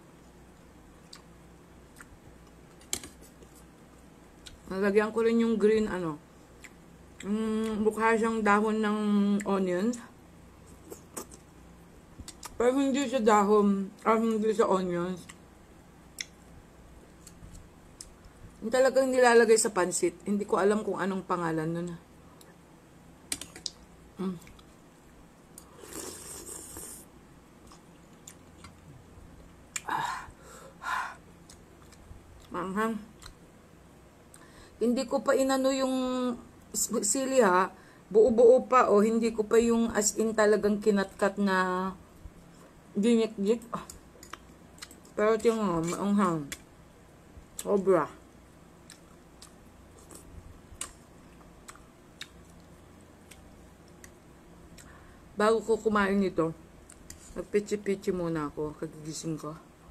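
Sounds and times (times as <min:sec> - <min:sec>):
chewing with faint clicks: 0:00.2 - 0:03.6, 0:04.4 - 0:04.7, 0:06.6 - 0:07.8, 0:12.2 - 0:12.6, 0:15.2 - 0:15.5, 0:16.1 - 0:18.4, 0:22.4 - 0:22.6, 0:23.3 - 0:25.7, 0:27.6 - 0:29.0, 0:31.4 - 0:33.4, 0:43.6 - 0:46.7, 0:47.4 - 0:47.9, 0:48.8 - 0:55.1, 0:56.8 - 0:57.4
woman slurping noodles: 0:25.8 - 0:27.0.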